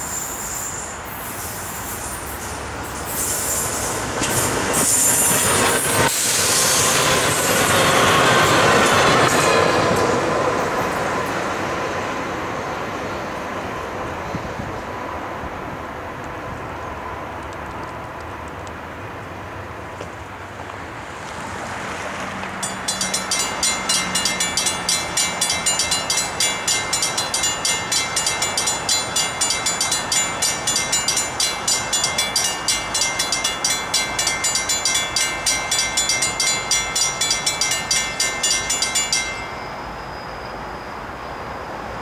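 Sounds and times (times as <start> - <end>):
faint freight train: 0.0 - 42.0
crossing warning bell ringing: 22.5 - 41.1.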